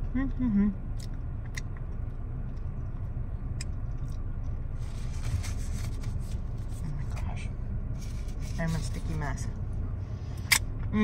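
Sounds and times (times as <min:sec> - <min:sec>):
car engine idling: 0:00.0 - 0:11.0
paper napkin rustling: 0:04.8 - 0:06.9.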